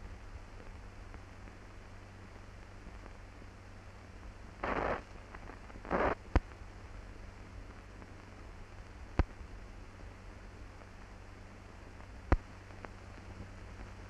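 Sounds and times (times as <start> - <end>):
film soundtrack hiss: 0.0 - 14.0.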